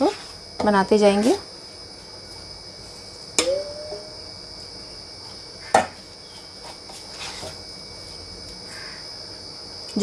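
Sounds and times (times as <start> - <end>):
high-pitched whine: 3.4 - 4.7.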